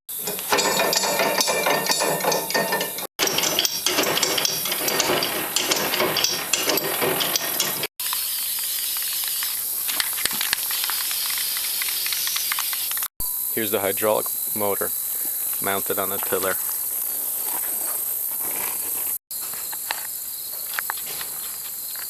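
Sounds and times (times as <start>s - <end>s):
crackling sizzling metalwork: 0.1s - 20.0s
steady hiss: 8.0s - 20.2s.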